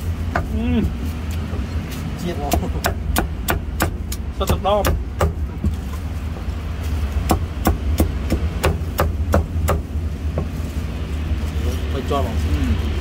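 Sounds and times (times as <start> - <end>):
cleaver chopping on chopping block: 2.4 - 5.8, 7.2 - 9.9.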